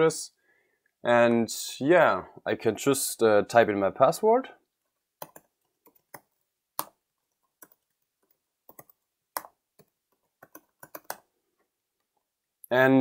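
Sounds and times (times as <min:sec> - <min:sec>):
computer keyboard keystrokes: 0:05.2 - 0:11.2.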